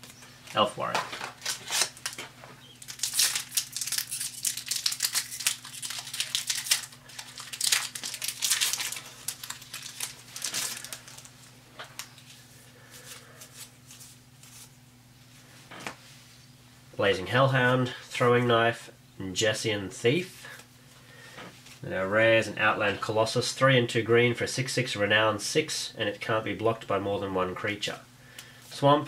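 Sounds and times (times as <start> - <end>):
foil wrapper crinkling and tearing: 1.2 - 12.4.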